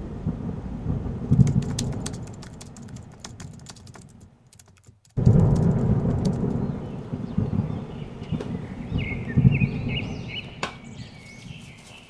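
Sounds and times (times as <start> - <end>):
rapid clicks like keyboard typing: 1.3 - 6.7
loud low rumbling: 5.2 - 10.6.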